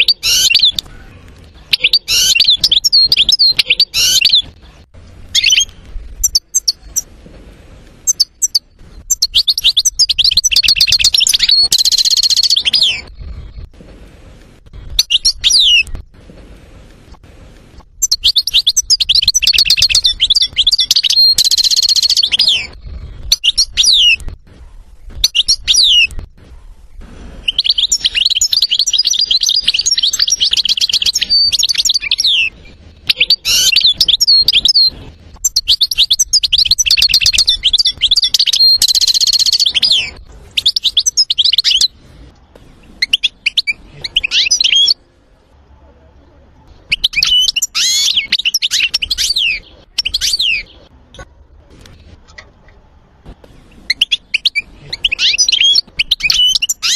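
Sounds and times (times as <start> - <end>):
goldfinch twittering and trilling: 1.7 - 4.5, 18.0 - 22.7.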